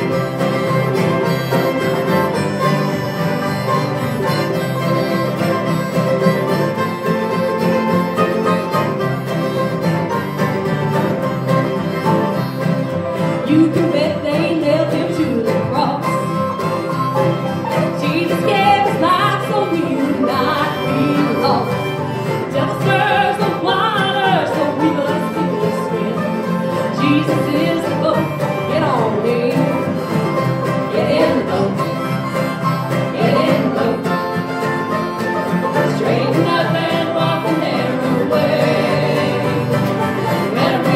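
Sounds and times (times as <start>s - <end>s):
acoustic guitars: 0.0s - 40.9s
bluegrass string band playing: 0.0s - 40.9s
mandolin: 0.0s - 40.9s
people singing: 18.2s - 21.8s, 22.4s - 30.0s, 30.7s - 34.6s, 35.7s - 40.9s.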